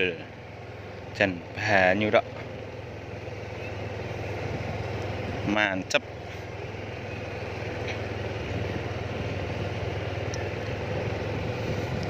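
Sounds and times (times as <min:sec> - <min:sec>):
constant rushing noise: 0:00.0 - 0:12.0
motorcycle engine humming: 0:00.0 - 0:12.0.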